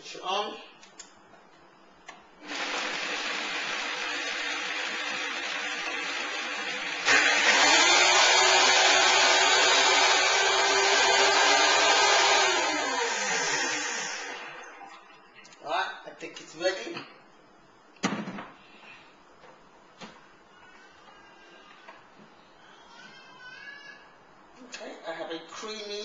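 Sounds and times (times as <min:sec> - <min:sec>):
blender running: 0:02.4 - 0:14.8.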